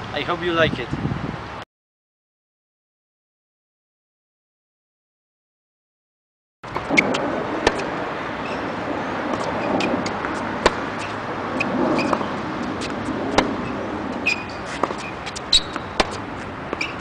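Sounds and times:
steady background noise: 6.6 - 17.0
ball bouncing: 6.7 - 8.6, 9.3 - 11.2, 12.0 - 17.0
tennis racket hitting ball: 6.7 - 8.6, 9.3 - 17.0.

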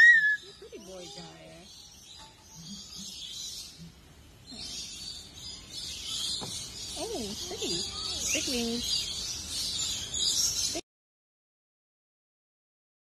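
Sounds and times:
cockatoo whistled calls: 0.0 - 0.6.

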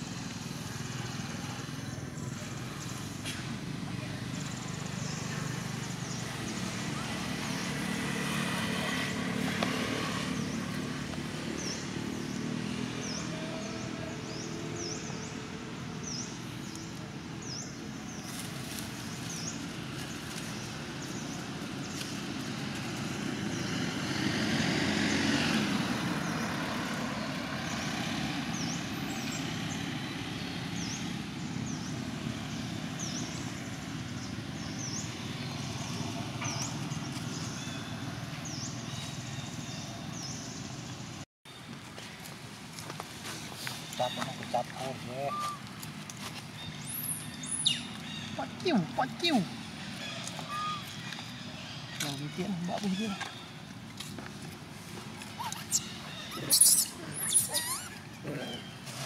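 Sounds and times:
motorcycle passing: 0.0 - 41.2, 43.3 - 59.0
traffic rumble: 0.0 - 59.0.

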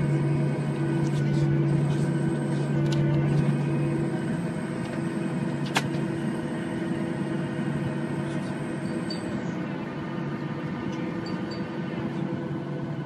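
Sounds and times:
airliner cabin drone: 0.0 - 13.0
faint high whine: 0.0 - 13.0.

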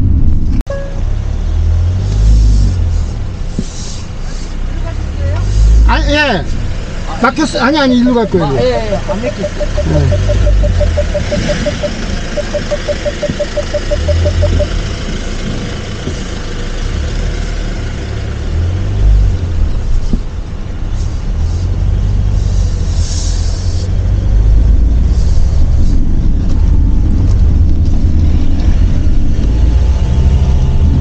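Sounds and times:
van driving rumble: 0.0 - 31.0
parking sensor beeping: 0.7 - 1.1, 8.4 - 14.9.

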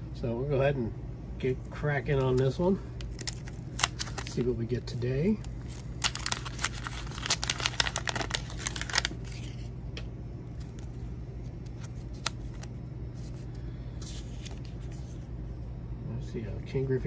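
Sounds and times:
wax paper wrapper crinkling: 2.0 - 9.7, 10.5 - 15.3
cards being handled: 2.1 - 15.3.

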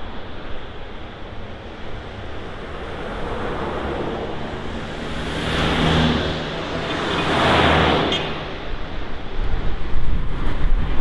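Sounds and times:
street traffic noise: 0.0 - 11.0
van passing: 2.3 - 9.1.

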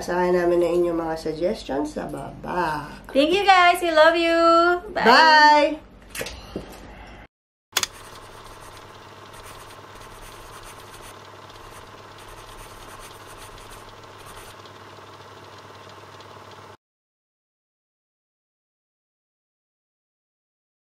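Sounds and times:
steady multi-tone hum: 7.8 - 16.8.

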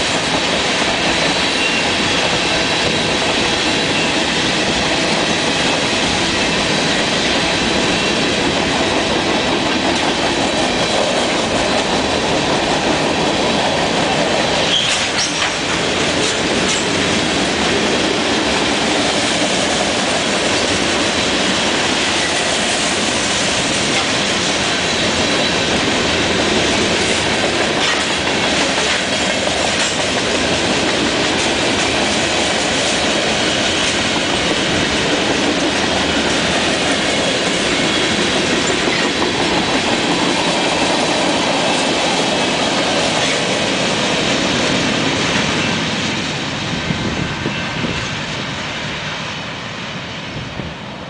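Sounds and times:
freight train wheels on rails: 0.0 - 51.0
clicking over rail joints: 14.6 - 17.7, 26.7 - 43.6.

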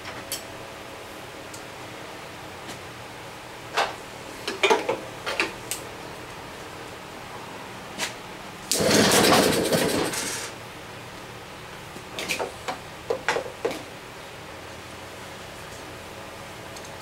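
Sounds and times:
engine turning over: 8.7 - 10.6.

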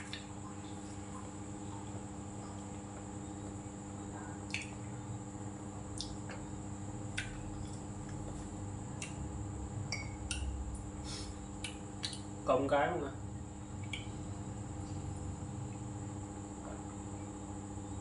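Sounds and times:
electrical hum: 0.0 - 18.0
wet chewing and mouth clicks: 5.9 - 6.4, 11.6 - 12.3.

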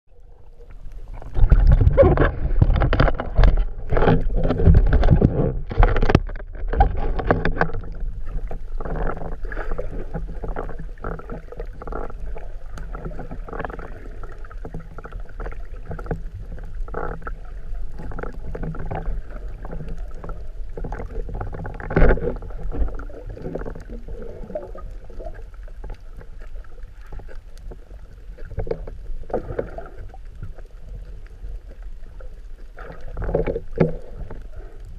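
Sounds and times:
choppy water wash: 0.1 - 34.9
muffled underwater splashing and bubbling: 0.1 - 34.9
knocks underwater: 1.1 - 12.2, 18.0 - 25.4.

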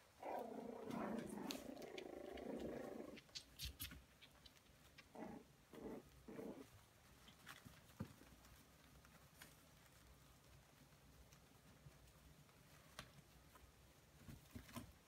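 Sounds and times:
paws tapping and scratching: 0.0 - 15.0
puppy growling: 0.2 - 3.4, 4.9 - 6.8.

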